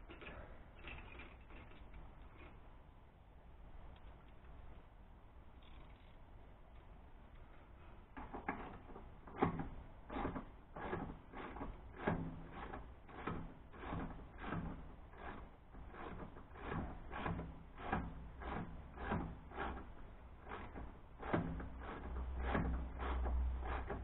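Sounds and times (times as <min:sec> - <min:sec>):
rasping scraping strokes on exhaust pipe: 0:08.3 - 0:24.0.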